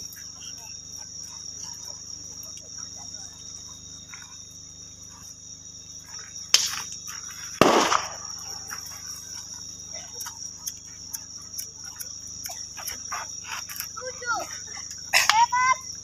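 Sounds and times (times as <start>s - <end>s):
bonfire crackling: 0.0s - 16.0s
crickets chirping: 0.0s - 16.0s
sharp bangs: 7.6s - 8.5s.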